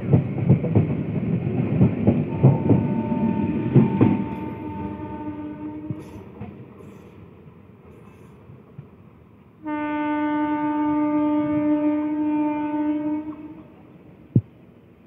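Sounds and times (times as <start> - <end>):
faint rumble of train: 0.0 - 15.0
train horn long blast: 2.3 - 6.2, 9.6 - 13.8.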